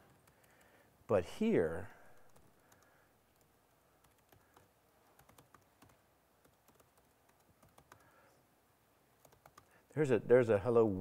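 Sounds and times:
computer keyboard typing: 0.0s - 0.7s, 2.1s - 8.1s, 9.2s - 9.8s.

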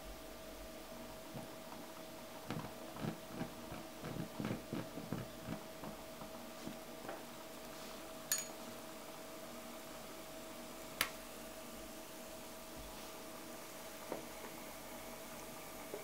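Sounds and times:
burner soft pops and puffs: 2.4s - 6.9s.

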